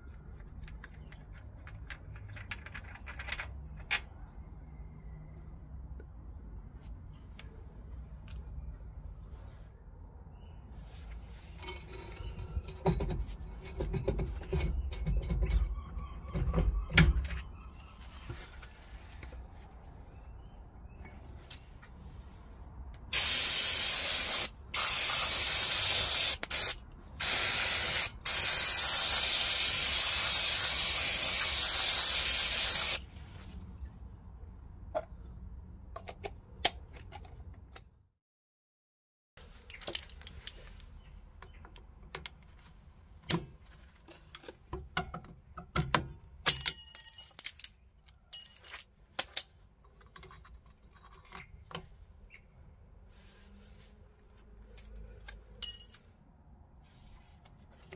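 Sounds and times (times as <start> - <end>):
aerosol spray hissing: 23.2 - 33.0.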